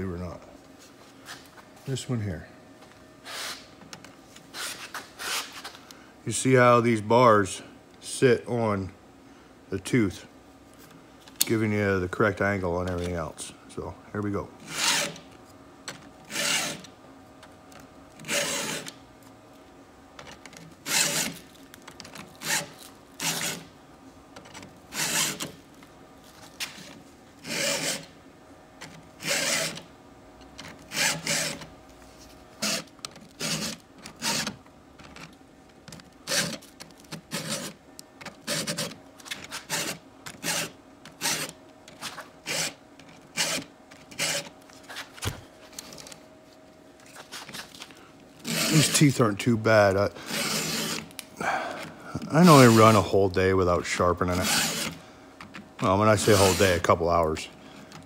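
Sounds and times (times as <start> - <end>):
files rasping on chainsaw chain: 48.5 - 49.1, 56.2 - 56.9.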